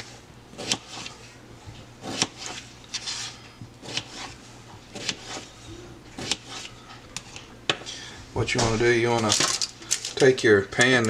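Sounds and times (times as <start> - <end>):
knife chopping on plastic board: 2.0 - 2.6, 3.8 - 5.5, 6.2 - 6.7.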